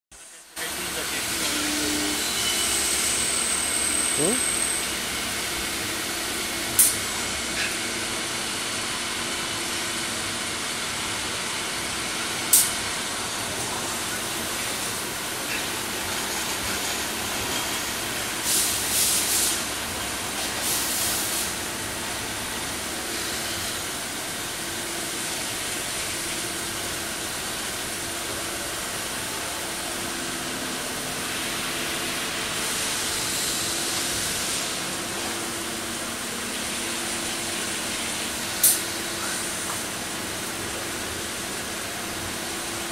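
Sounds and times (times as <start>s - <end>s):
coolant hissing and splashing: 18.4s - 19.7s, 20.4s - 21.6s.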